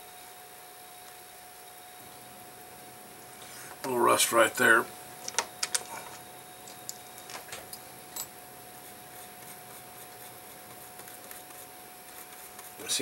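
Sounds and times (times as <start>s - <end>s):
faint continuous hum: 0.0s - 13.0s
steady low hiss: 0.0s - 13.0s.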